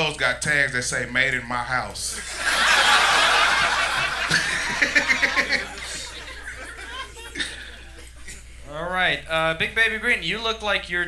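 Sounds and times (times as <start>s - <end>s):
audience laughing: 2.2s - 8.5s.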